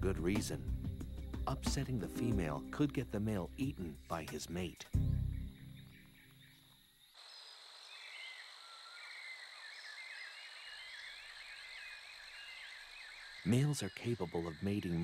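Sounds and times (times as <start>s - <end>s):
music: 0.0s - 6.5s
high insect drone: 0.1s - 15.0s.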